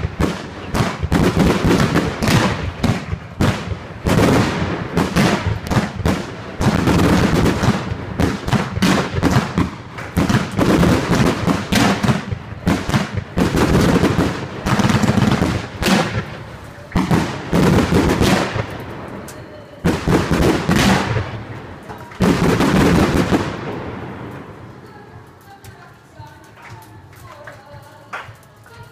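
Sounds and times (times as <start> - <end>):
aerial fireworks bursting: 0.0 - 25.9.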